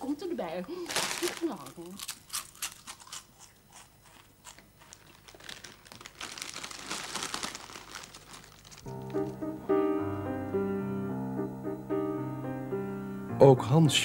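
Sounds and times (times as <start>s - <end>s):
quiet crinkling and rustling: 0.6s - 2.0s, 4.6s - 9.4s
piano music: 8.8s - 14.0s.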